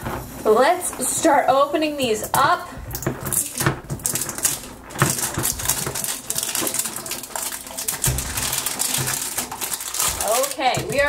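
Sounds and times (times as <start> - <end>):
plastic wrap crinkling: 0.0 - 11.0.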